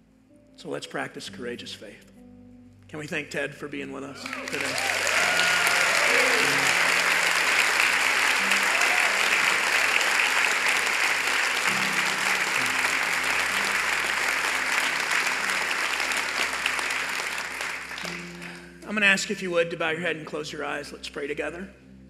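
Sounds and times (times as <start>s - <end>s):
soft sustained music: 0.0s - 22.0s
congregation applauding: 4.2s - 18.8s.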